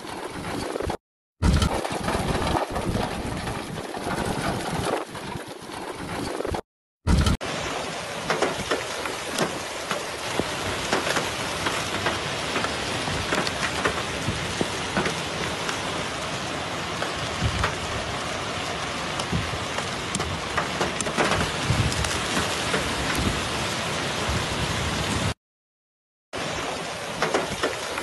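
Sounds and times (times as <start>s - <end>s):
heavy rain downpour: 1.5s - 4.4s, 7.2s - 25.4s, 26.4s - 28.0s
hailstones ticking: 8.2s - 23.7s.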